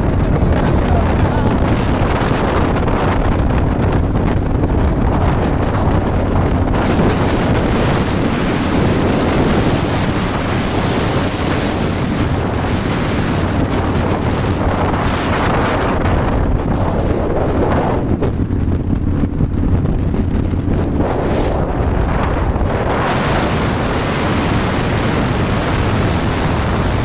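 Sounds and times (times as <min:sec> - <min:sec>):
motorcycle engine humming: 0:00.0 - 0:27.0
wind buffeting microphone: 0:00.0 - 0:27.0.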